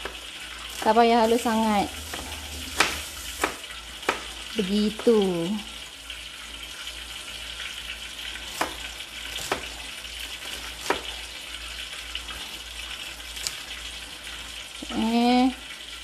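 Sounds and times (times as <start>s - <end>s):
knife tapping on chopping board: 2.1s - 4.3s.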